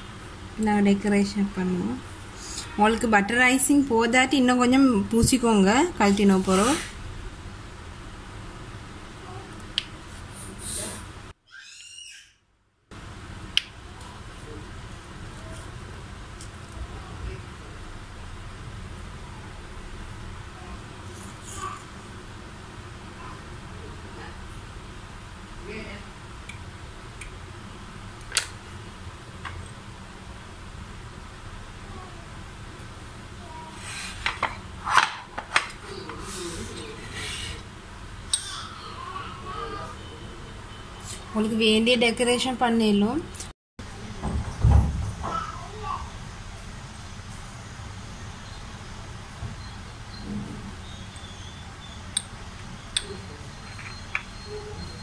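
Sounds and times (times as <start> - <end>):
low room hum: 0.0 - 55.0
plate sliding across table: 33.8 - 35.1, 36.2 - 37.7.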